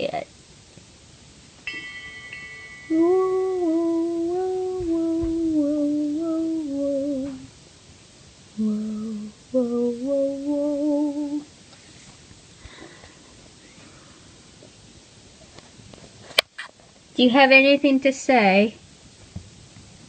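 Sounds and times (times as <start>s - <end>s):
person humming: 2.9s - 7.5s, 8.6s - 11.5s.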